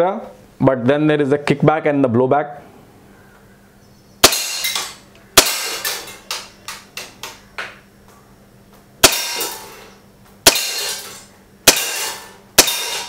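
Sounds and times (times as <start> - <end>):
air pistol shots: 4.2 - 6.2, 9.0 - 13.0.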